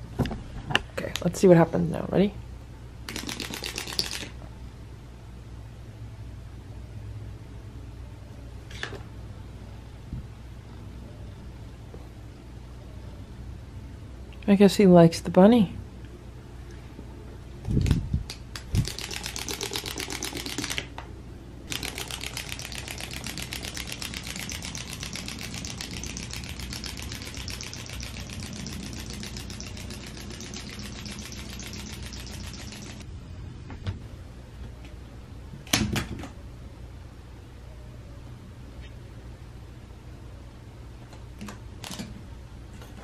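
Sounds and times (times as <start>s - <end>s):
wind-up toy ratcheting clicks: 3.1s - 4.3s, 18.8s - 20.8s, 21.7s - 33.0s.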